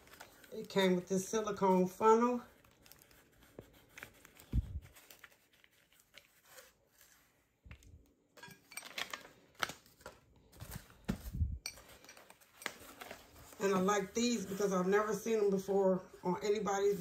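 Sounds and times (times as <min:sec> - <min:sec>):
packaging rustling and tearing: 0:00.0 - 0:01.1, 0:02.4 - 0:07.9, 0:08.8 - 0:13.6.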